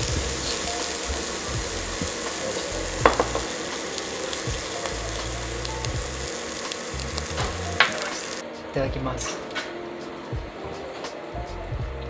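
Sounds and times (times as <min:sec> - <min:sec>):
brussels sprouts sizzling in a pot: 0:00.0 - 0:08.4.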